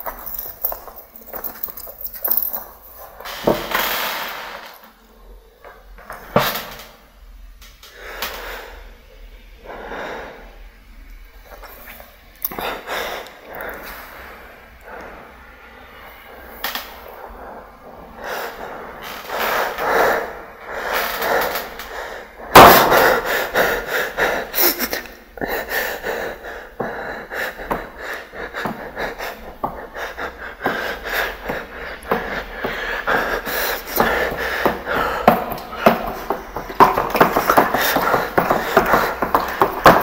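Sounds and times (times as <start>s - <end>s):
person breathing hard: 7.8s - 10.7s, 11.5s - 40.0s.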